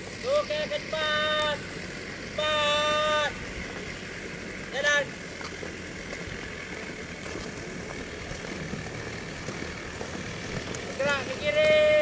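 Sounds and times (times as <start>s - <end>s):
low background rumble: 0.0s - 12.0s
boots marching on hard court: 5.3s - 12.0s.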